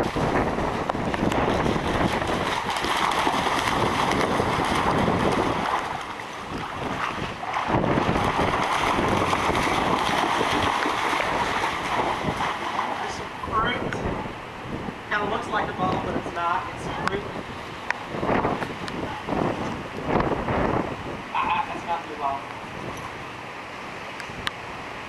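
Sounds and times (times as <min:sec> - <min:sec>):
water splashing: 0:00.0 - 0:14.2
wind buffeting microphone: 0:00.0 - 0:23.3.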